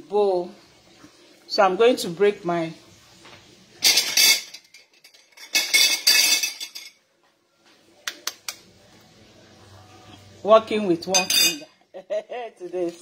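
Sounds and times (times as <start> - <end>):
kitchenware clattering: 3.8 - 7.0, 10.9 - 11.8.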